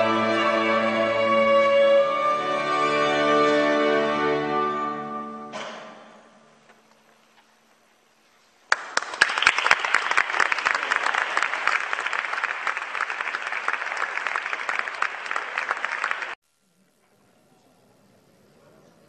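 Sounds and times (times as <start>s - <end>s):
applause: 8.7s - 16.4s.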